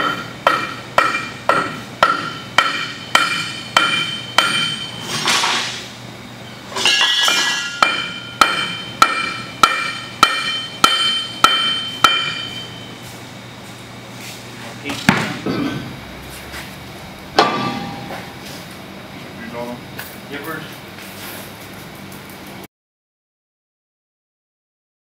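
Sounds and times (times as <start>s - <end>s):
hammer ringing on steel hub: 0.0s - 5.1s, 6.8s - 13.0s, 17.4s - 18.4s.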